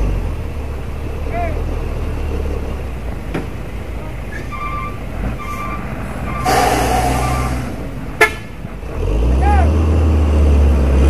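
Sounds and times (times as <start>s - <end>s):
diesel truck engine running: 0.0s - 11.0s
air brakes hissing: 4.2s - 8.8s.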